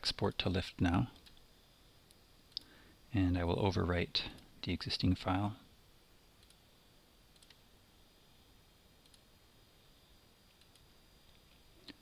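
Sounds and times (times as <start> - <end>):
faint computer mouse clicks: 7.3 - 7.6, 9.0 - 9.2.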